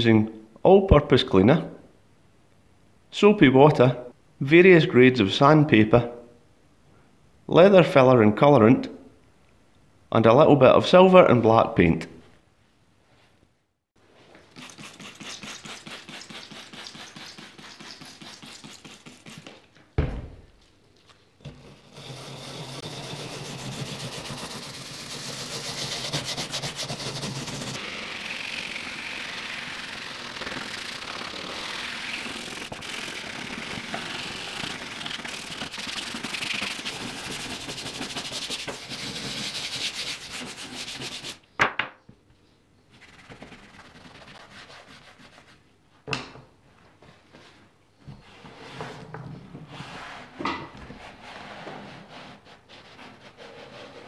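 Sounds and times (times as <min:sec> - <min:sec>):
scrub brush scrubbing: 0:14.5 - 0:19.6, 0:21.8 - 0:41.4, 0:43.0 - 0:45.5.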